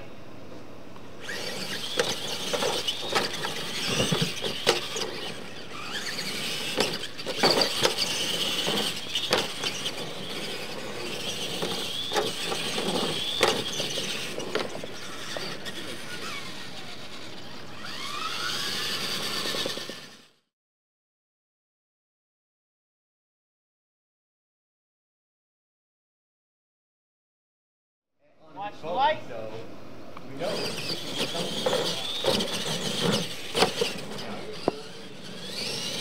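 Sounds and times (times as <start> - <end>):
toy truck electric motors whining: 1.2 - 20.5, 30.3 - 36.0
sharp knocks and clatters: 31.2 - 34.8.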